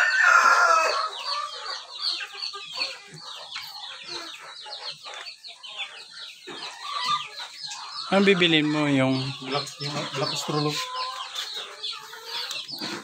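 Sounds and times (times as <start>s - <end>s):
rooster crowing: 0.0s - 1.2s
chickens clucking and chirping: 0.0s - 13.0s.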